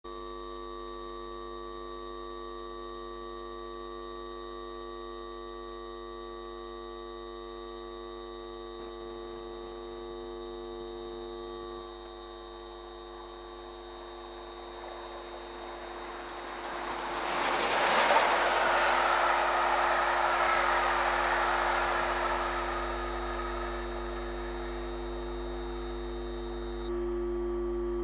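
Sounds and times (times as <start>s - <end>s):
approaching train rushing: 14.4s - 25.2s
steady electrical hum: 20.7s - 27.0s.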